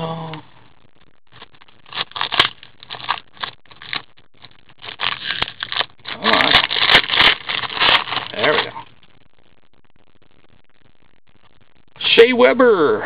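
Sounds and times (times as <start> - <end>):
foil wrapper crinkling: 1.3 - 9.0.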